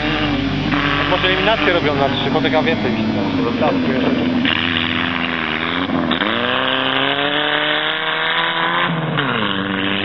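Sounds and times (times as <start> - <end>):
car engine revving hard: 0.0 - 10.0.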